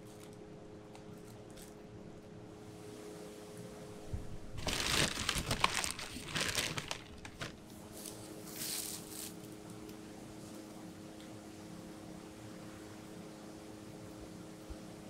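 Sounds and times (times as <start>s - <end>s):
steady low hum: 0.0s - 15.0s
plastic bag crinkling: 4.6s - 9.3s.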